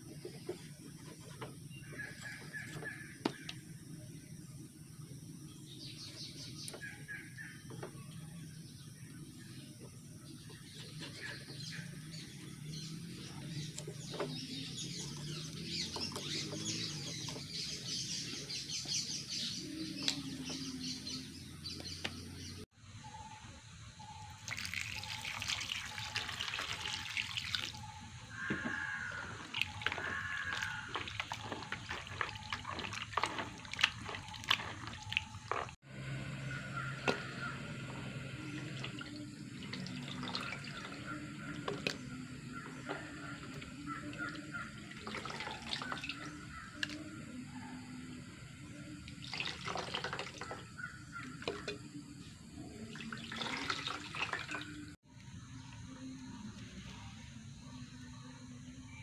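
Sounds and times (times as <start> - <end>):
water pouring: 24.3 - 35.8, 38.4 - 42.1, 42.8 - 47.0, 49.1 - 51.8, 52.7 - 55.0
splashing while rinsing: 24.4 - 35.8, 36.5 - 47.1, 49.1 - 51.8, 52.8 - 55.0.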